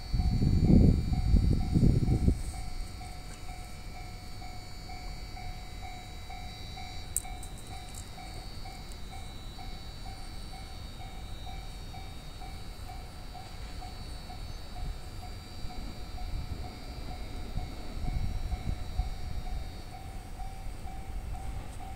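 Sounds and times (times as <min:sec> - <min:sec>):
level crossing bell ringing: 0:00.0 - 0:21.9.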